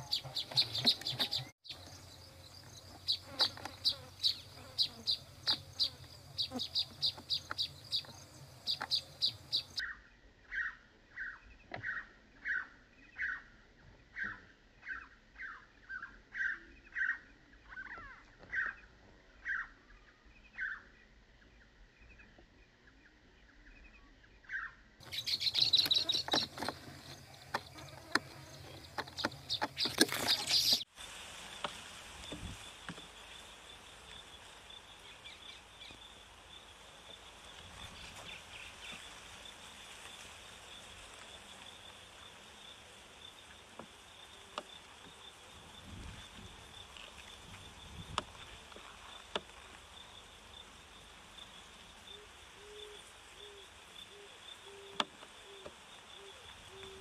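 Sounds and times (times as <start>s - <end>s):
birds chirping and calling: 0.0s - 13.5s, 14.1s - 21.0s, 23.5s - 30.9s
faint high hiss: 25.0s - 57.0s.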